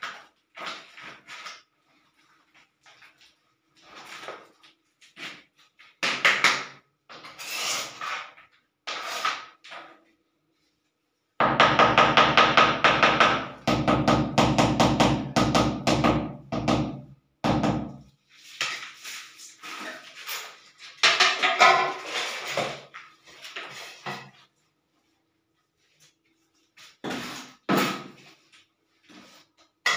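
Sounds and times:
tile scraping and knocking: 7.1 - 9.9, 26.8 - 28.4.

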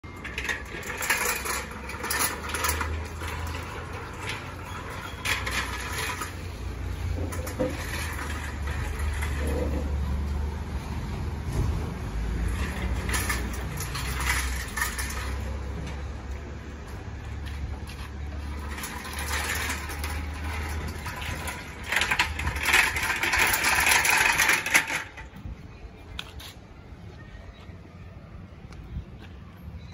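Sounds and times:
metal barricade clinking and rattling: 0.0 - 10.3, 11.4 - 16.4, 17.4 - 25.5.

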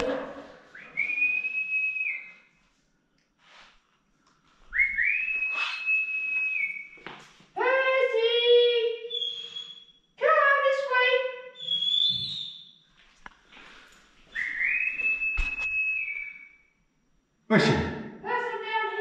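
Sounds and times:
person whistling long notes: 0.7 - 2.4, 4.7 - 7.1, 9.1 - 9.9, 14.3 - 16.6.

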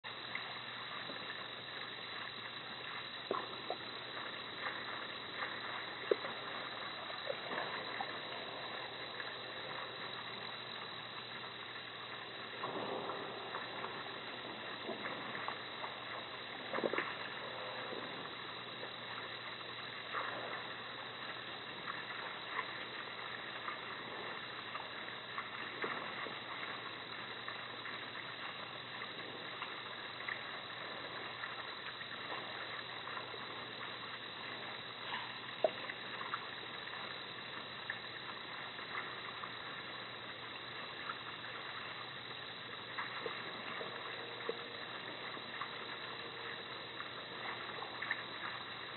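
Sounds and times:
microphone hiss: 0.0 - 48.9
faint clicks and rustles: 0.1 - 48.9.

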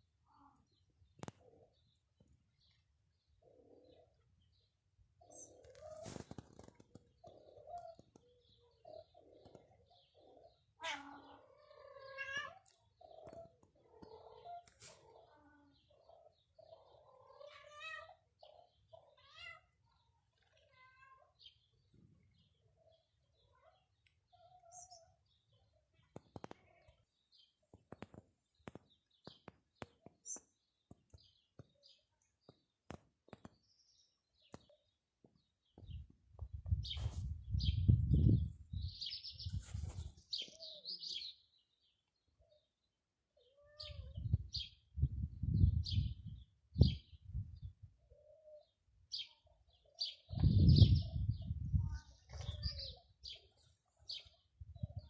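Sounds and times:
small birds chirping: 0.0 - 55.0
cat meowing: 10.8 - 12.7, 17.2 - 18.2, 19.2 - 19.7, 43.6 - 44.2.

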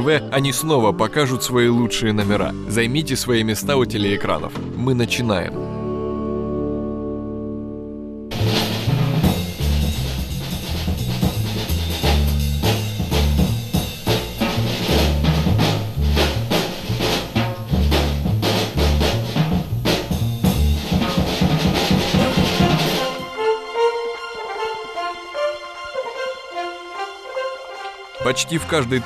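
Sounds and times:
low blocky bass line: 2.3 - 22.5
drum-kit beat: 8.3 - 23.3.

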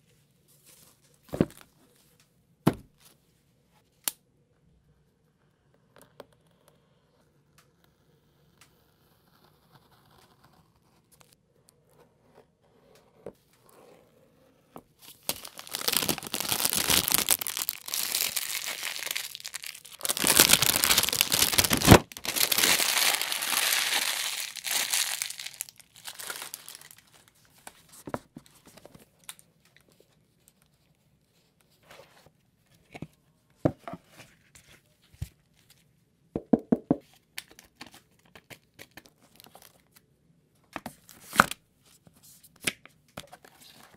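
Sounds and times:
cardboard box being opened: 15.1 - 27.0
paper inserts handled: 15.1 - 27.0
plastic film tearing and crumpling: 15.1 - 27.3.

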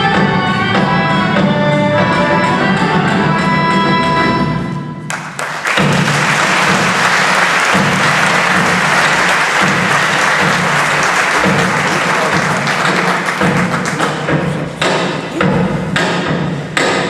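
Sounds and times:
audience applause: 5.1 - 14.4
folk band held chord: 5.7 - 14.1.

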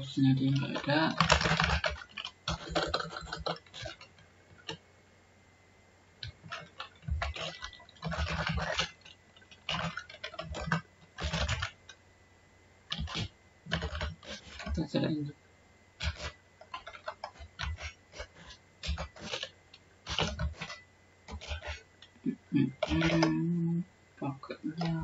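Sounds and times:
computer keyboard typing: 0.2 - 4.8, 6.2 - 12.0, 12.9 - 15.1, 16.0 - 23.5, 24.4 - 25.0.

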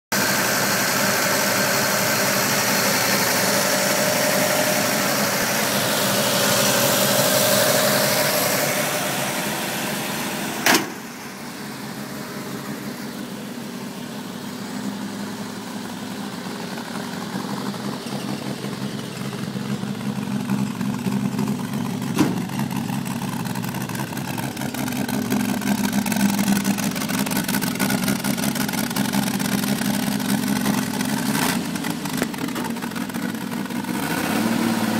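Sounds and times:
truck engine idling: 0.1 - 34.9
sharp click: 10.6 - 11.0.

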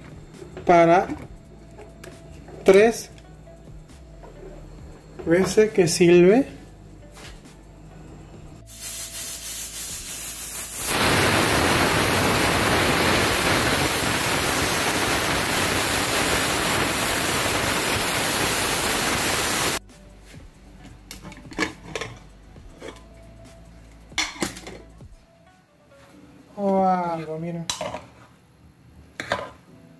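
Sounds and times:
pressure cooker steam hissing: 8.6 - 19.8.

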